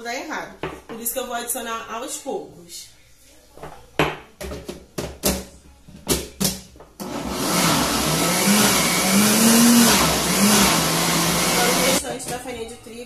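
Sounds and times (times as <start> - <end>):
blender motor running: 7.0 - 12.0.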